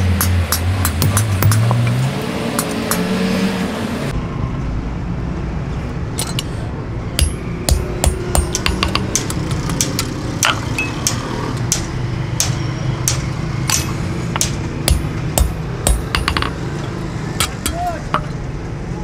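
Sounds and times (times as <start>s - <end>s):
hammer striking metal on anvil: 0.0s - 1.8s, 7.2s - 16.6s, 17.4s - 18.4s.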